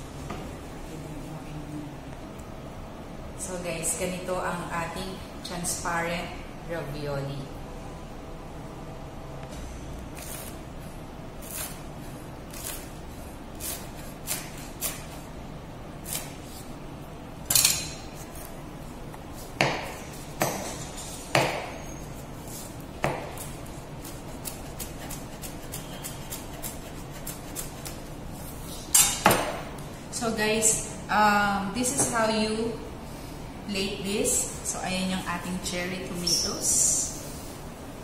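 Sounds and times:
knife chopping on cutting board: 19.6 - 21.8, 22.5 - 28.0.

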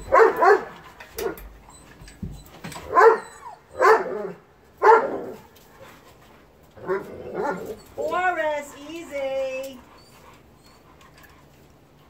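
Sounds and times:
dog barking: 0.1 - 1.4, 2.9 - 3.2, 3.8 - 5.4, 6.9 - 7.8.

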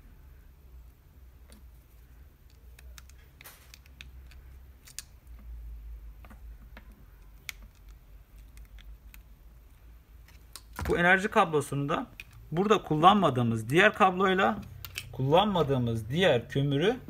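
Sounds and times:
low steady hum: 0.0 - 17.0
pliers clicking on wire terminals: 2.4 - 5.5, 7.2 - 9.3, 14.6 - 15.2.

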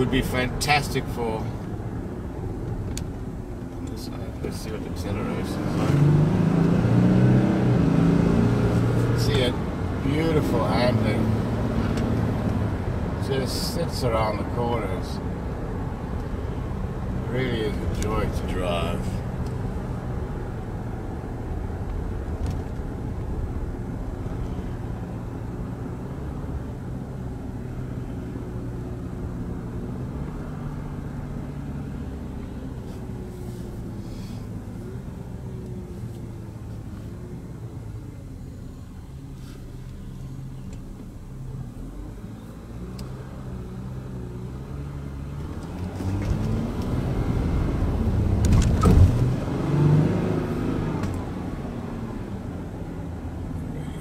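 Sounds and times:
diesel engine running inside cab: 0.0 - 54.0.

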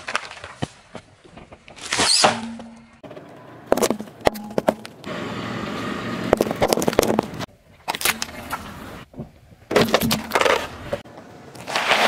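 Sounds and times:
car tyre crushing objects: 0.0 - 5.2, 5.8 - 12.0.

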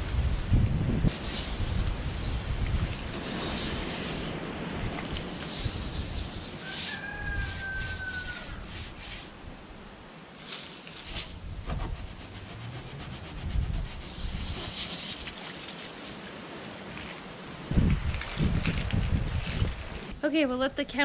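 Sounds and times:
wind buffeting microphone: 0.0 - 6.6, 11.3 - 14.8, 17.7 - 21.0
garden hose spraying water: 0.2 - 9.4, 10.3 - 20.2
brush scrubbing wet tray: 5.2 - 9.3, 11.9 - 16.2.

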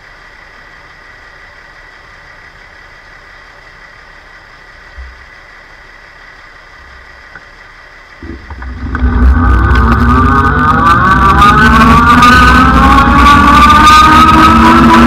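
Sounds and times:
electric motor whine: 8.2 - 15.0.

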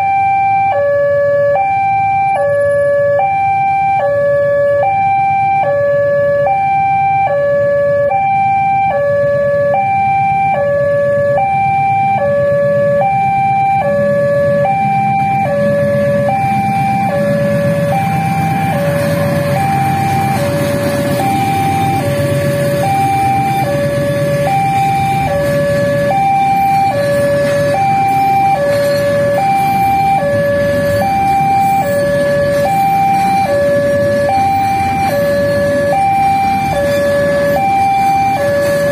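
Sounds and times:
level crossing two-tone alarm: 0.0 - 38.9
freight train rumbling: 13.8 - 38.9.

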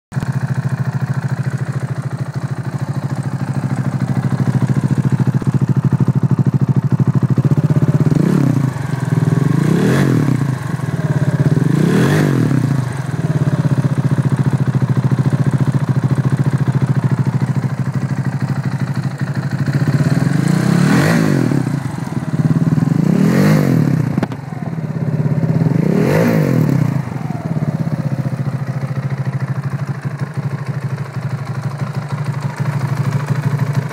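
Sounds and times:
motorcycle engine idling: 0.1 - 33.9
engine revving blips: 20.0 - 21.8.

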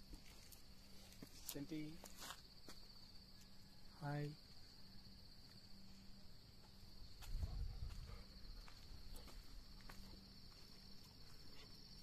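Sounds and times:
footsteps on road: 0.0 - 2.9, 6.6 - 11.9
night insects chirring: 0.0 - 12.0.

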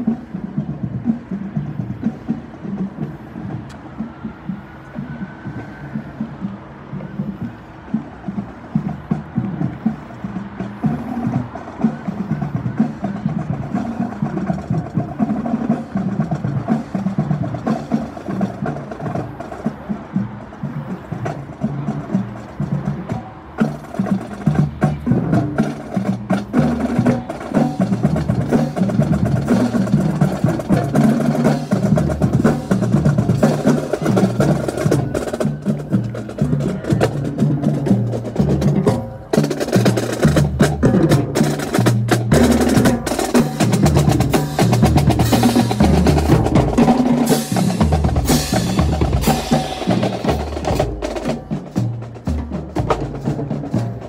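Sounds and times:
snare drum strokes and rolls: 0.0 - 54.0
pounding bass drums: 24.1 - 54.0.

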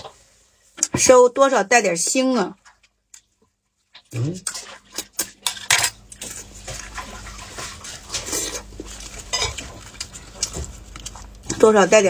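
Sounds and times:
wet handling and eating sounds: 2.5 - 12.0.

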